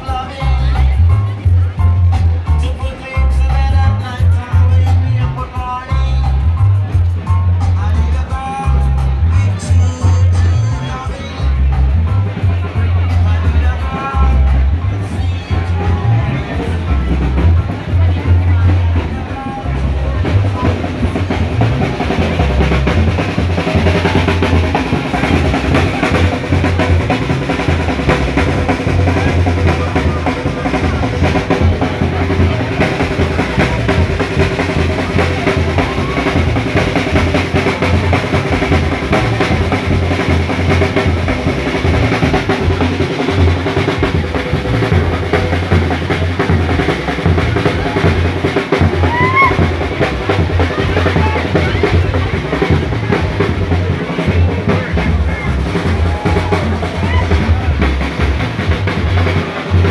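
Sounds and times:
drums playing: 0.0s - 59.9s.

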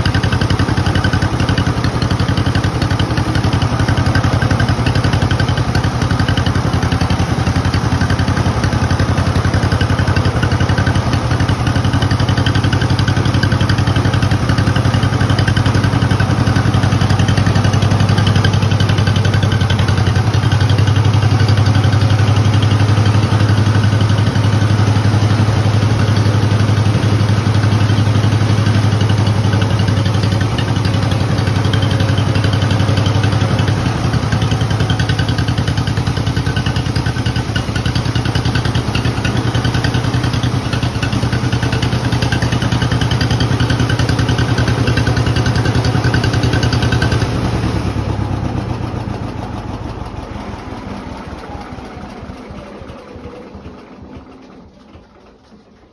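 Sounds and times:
tractor engine idling: 0.0s - 55.9s.

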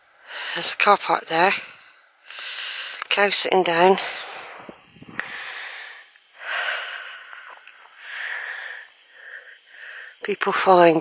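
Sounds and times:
person breathing: 1.6s - 3.1s, 3.8s - 10.2s.

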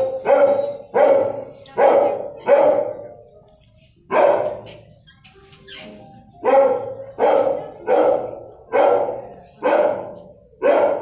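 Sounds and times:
dog barking with echo: 0.0s - 3.1s, 4.1s - 4.7s, 6.4s - 11.0s.

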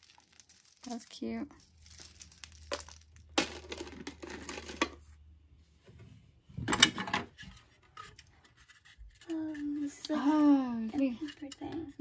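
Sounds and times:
plastic necklace rattling: 0.0s - 4.8s
plastic toys clattering: 0.0s - 5.1s, 6.7s - 12.0s.

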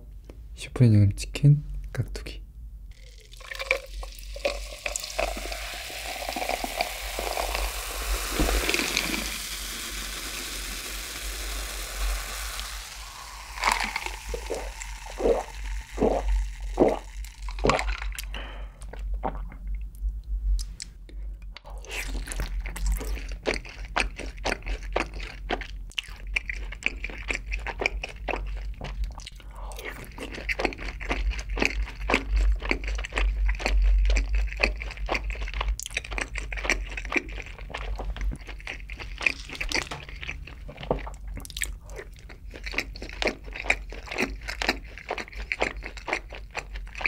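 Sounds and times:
person gulping: 2.9s - 9.3s, 11.3s - 19.9s, 34.6s - 42.9s
soda pouring and fizzing: 2.9s - 18.3s.

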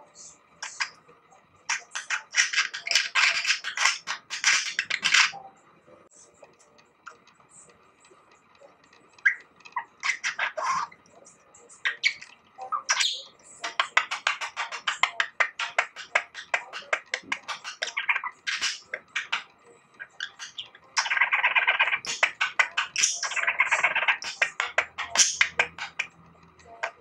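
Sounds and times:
budgerigar warbling: 1.7s - 5.4s, 9.2s - 11.0s, 11.8s - 27.0s.

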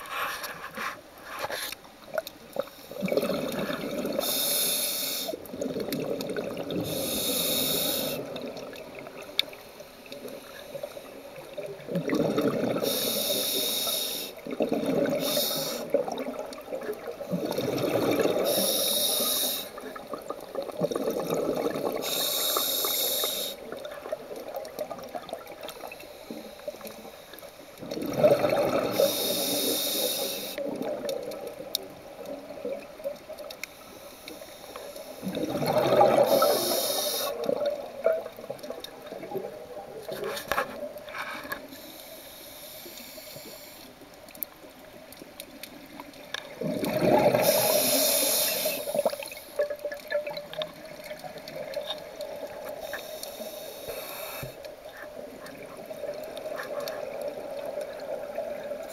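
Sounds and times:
exhaled bubbles rushing underwater: 2.5s - 4.4s, 5.4s - 9.5s, 10.1s - 13.1s, 14.4s - 22.5s, 27.8s - 33.5s, 35.1s - 41.0s, 45.7s - 52.9s, 54.8s - 58.9s
regulator breathing noise: 4.2s - 5.4s, 6.8s - 8.4s, 12.8s - 14.4s, 15.2s - 16.0s, 18.4s - 19.9s, 22.0s - 23.7s, 28.9s - 30.6s, 36.3s - 37.5s, 41.1s - 44.0s, 47.4s - 49.6s, 52.6s - 55.2s.

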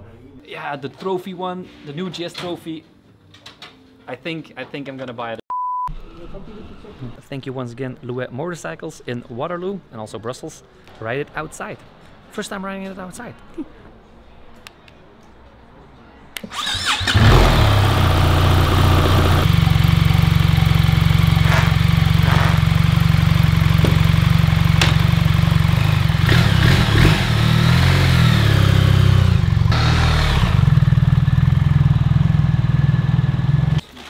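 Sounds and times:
motorcycle engine starting and running: 16.5s - 33.8s.

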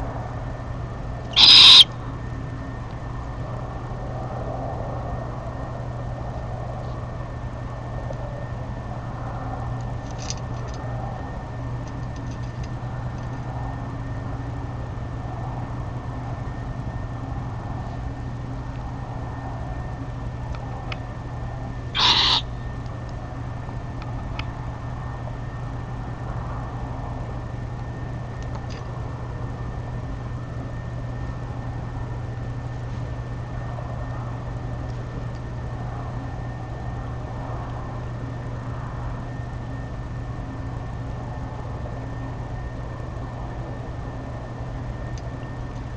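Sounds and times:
steady low hum: 0.0s - 45.9s
thin high whine: 1.3s - 1.9s, 22.0s - 22.6s
owl tearing at prey in bedding: 1.4s - 1.9s, 22.0s - 22.4s.

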